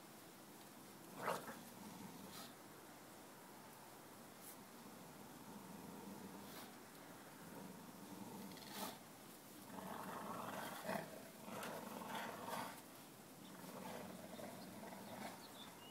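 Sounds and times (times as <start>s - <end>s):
dogs growling in play: 1.1s - 2.6s, 4.8s - 9.0s, 9.6s - 12.8s, 13.4s - 15.8s.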